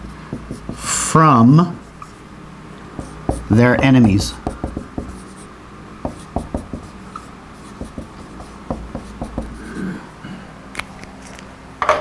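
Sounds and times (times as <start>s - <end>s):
marker scratching on whiteboard: 0.0s - 1.0s, 3.0s - 9.8s.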